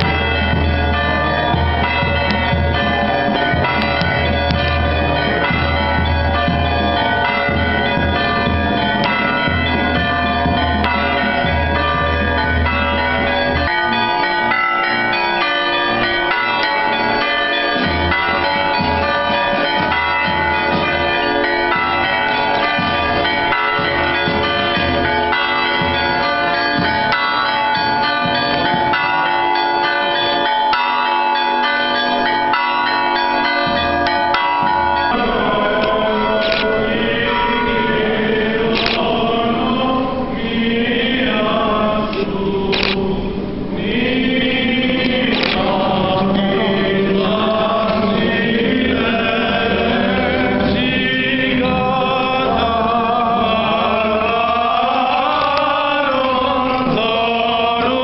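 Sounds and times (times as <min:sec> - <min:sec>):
church bells pealing: 0:00.0 - 0:58.0.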